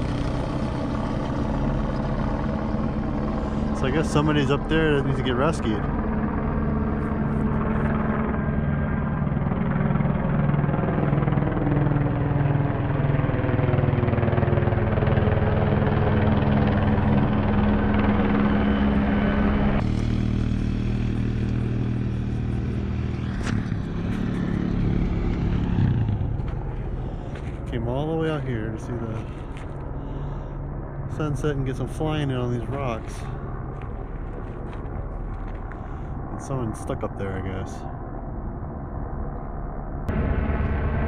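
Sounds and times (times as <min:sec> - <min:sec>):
helicopter engine and rotor drone: 0:00.0 - 0:41.0.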